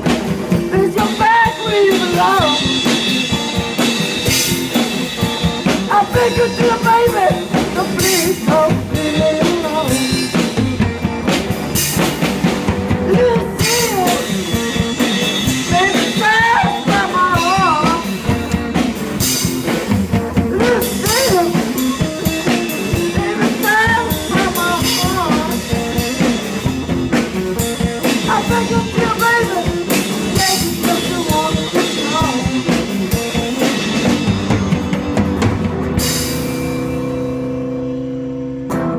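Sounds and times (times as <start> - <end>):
drum kit: 0.0 - 38.9
electric guitar: 0.0 - 38.9.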